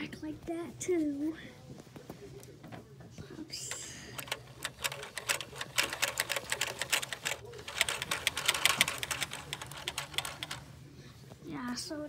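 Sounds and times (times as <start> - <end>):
plastic gears clicking rapidly: 4.2 - 10.6.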